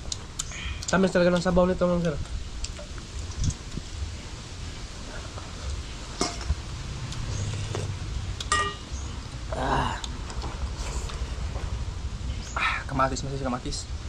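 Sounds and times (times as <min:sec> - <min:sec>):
wind rumble on microphone: 0:00.0 - 0:14.0
metal spoon clinking on dish: 0:08.5 - 0:08.9.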